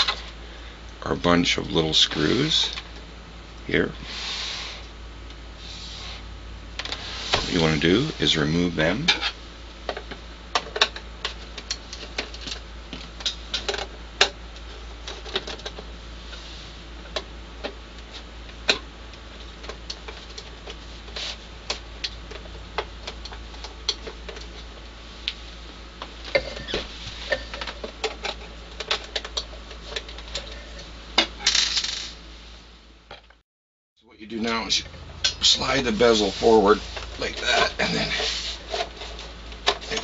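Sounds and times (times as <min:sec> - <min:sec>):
low steady hum: 0:00.0 - 0:33.4, 0:34.0 - 0:40.0.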